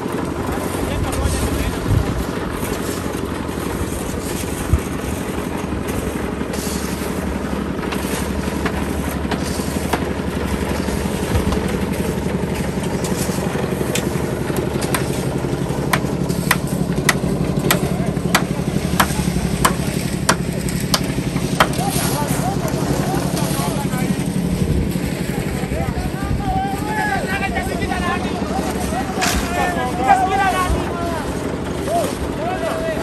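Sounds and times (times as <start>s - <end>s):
concrete mixer engine running: 0.0s - 33.0s
sharp clicks and knocks: 13.9s - 21.8s.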